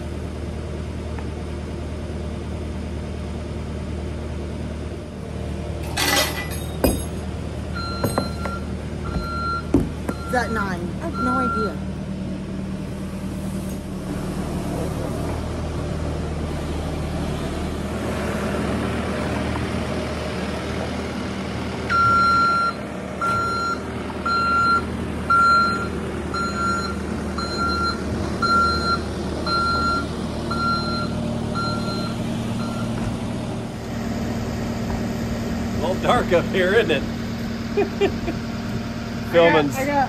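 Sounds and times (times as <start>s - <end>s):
engine running steadily: 0.0s - 40.0s
backup alarm beeping: 7.8s - 11.8s, 21.9s - 33.0s.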